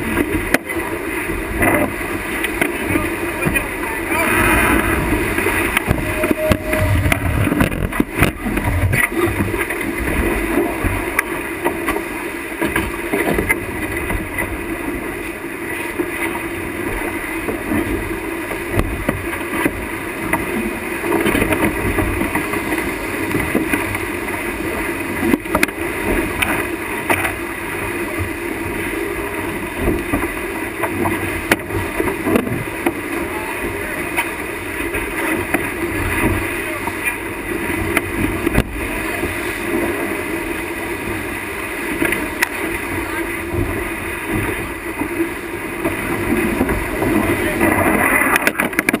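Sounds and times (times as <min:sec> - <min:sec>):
water streaming past hull: 0:00.0 - 0:49.0
wind buffeting microphone: 0:04.0 - 0:11.1.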